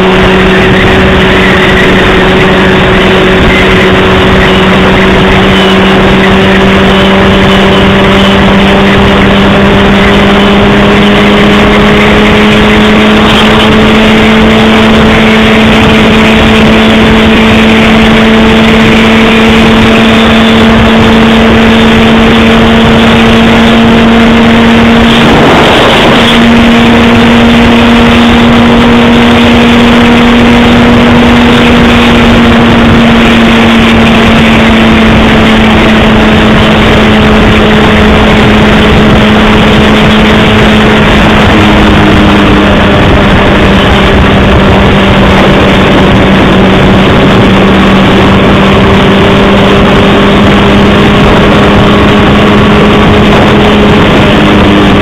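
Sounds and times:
motorcycle engine cruising: 0.0s - 55.0s
wind and road noise: 0.0s - 55.0s.

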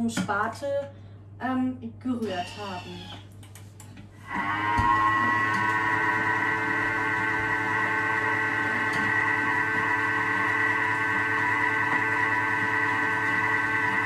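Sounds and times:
food processor motor whining: 4.3s - 14.0s.

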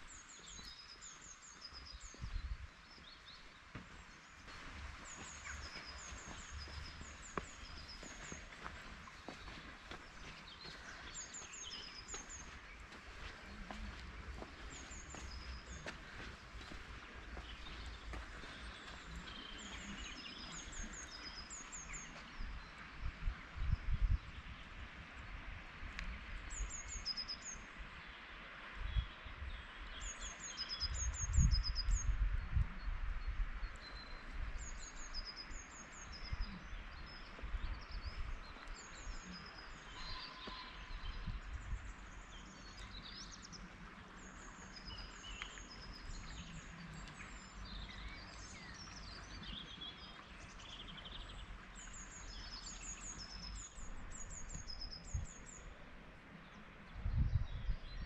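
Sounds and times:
small songbirds singing: 0.0s - 24.8s, 26.0s - 55.8s.

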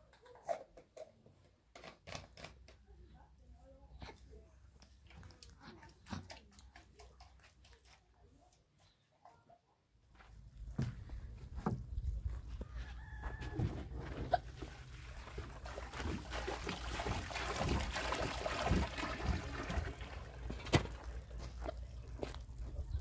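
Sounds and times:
water splashing into cement mix: 14.6s - 23.0s.

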